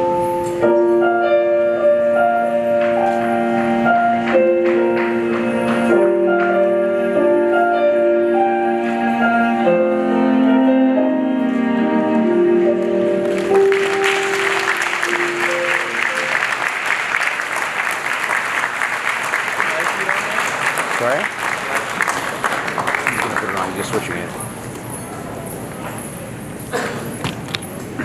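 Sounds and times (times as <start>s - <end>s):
slow music with long notes: 0.0s - 17.3s
audience applauding: 13.2s - 24.4s.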